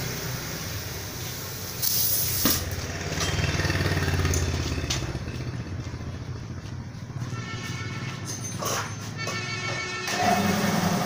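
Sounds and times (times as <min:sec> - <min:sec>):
compressed air hissing from hose: 0:00.0 - 0:02.8.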